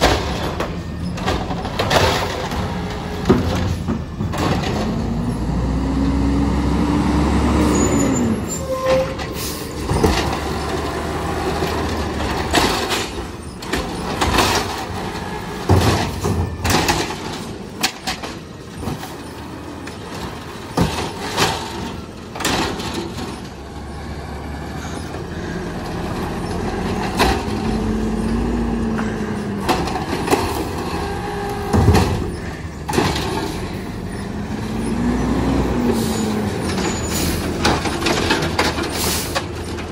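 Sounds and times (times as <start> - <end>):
carts banging and clattering: 0.0 - 5.8, 7.3 - 39.9
garbage truck engine revving: 0.0 - 39.9.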